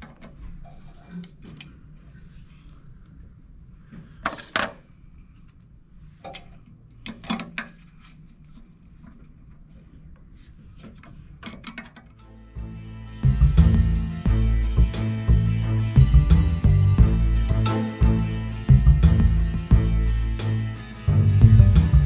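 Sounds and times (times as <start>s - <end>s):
outro music: 12.2s - 22.0s.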